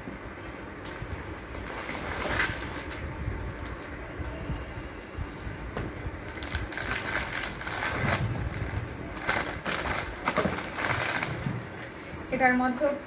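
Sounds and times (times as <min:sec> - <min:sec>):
plastic bag rustling and crinkling: 0:01.0 - 0:03.8, 0:06.2 - 0:12.0.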